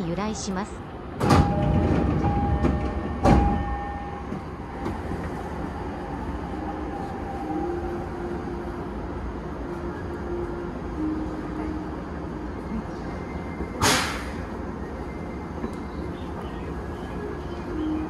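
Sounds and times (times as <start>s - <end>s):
train rolling past: 0.0s - 18.0s
loud clunk: 1.2s - 3.7s, 13.8s - 14.4s.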